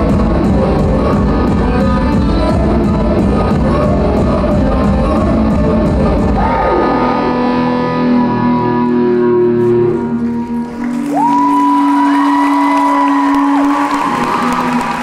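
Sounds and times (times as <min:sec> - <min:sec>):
live band music: 0:00.0 - 0:11.4.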